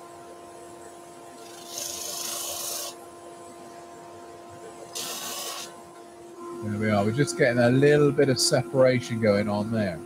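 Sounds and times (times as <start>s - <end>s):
sanding disc humming: 1.3s - 3.0s, 4.9s - 5.8s
rasping hiss of wood sanding: 1.4s - 3.0s, 5.0s - 5.7s.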